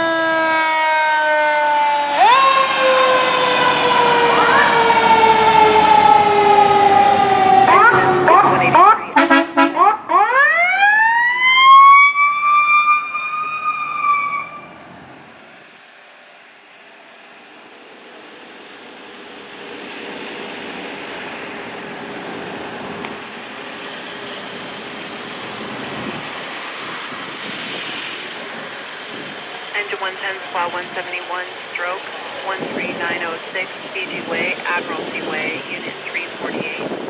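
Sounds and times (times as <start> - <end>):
engine and road noise: 0.0 - 37.0
siren winding up: 1.8 - 9.0, 9.9 - 14.8.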